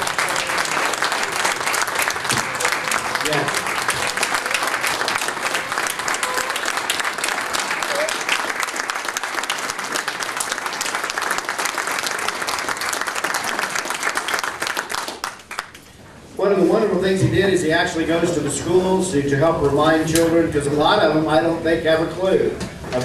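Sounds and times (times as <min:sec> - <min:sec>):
audience applauding: 0:00.0 - 0:15.8.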